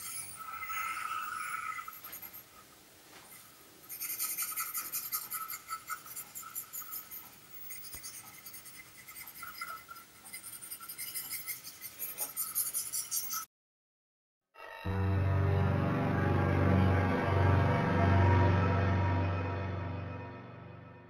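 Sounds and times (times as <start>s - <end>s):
high scratchy rasping: 0.0s - 2.5s, 3.3s - 13.5s.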